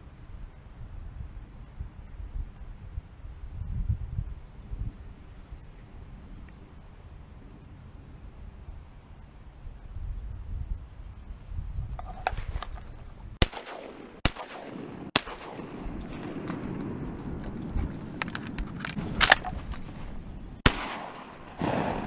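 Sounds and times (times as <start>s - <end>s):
shotgun blasts: 13.4s - 17.5s, 20.6s - 22.0s.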